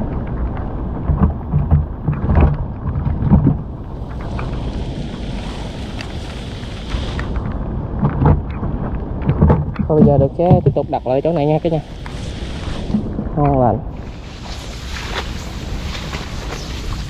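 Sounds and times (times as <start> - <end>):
knocks and splashes: 0.0 - 4.6, 8.0 - 11.0
low rumbling: 0.0 - 17.0
hiss of falling water: 3.8 - 7.5, 10.3 - 13.1, 13.9 - 17.0.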